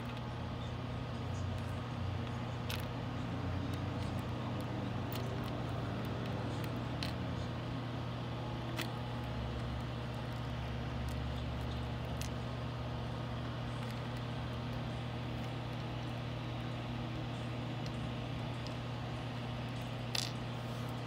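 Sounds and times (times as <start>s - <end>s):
low machine hum: 0.0s - 21.0s
metal charms clicking: 16.6s - 21.0s.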